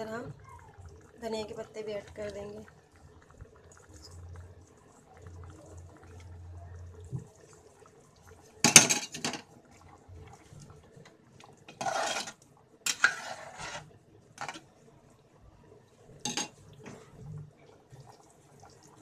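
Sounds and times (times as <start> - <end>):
metal ladle scraping a pot: 11.7 - 14.6.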